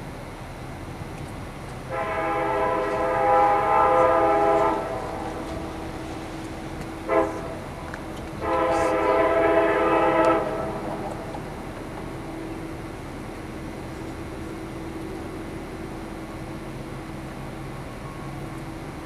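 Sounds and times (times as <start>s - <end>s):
locomotive air horn blasts: 1.9s - 11.4s.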